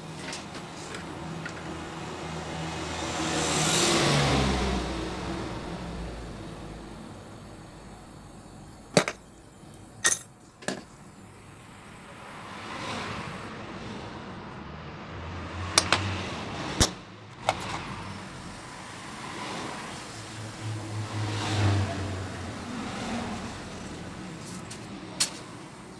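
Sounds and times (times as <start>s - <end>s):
gas torch hissing: 0.0s - 13.6s, 16.7s - 25.9s.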